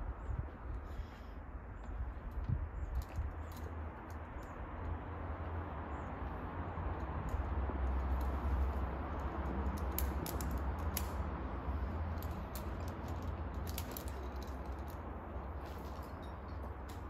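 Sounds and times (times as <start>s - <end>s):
light clicks and ticks: 6.2s - 11.4s.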